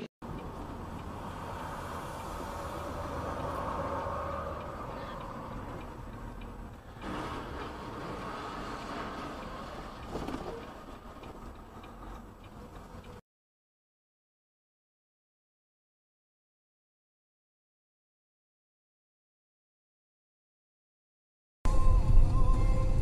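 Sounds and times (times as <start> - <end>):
vehicle engine and road noise: 0.0 - 13.2.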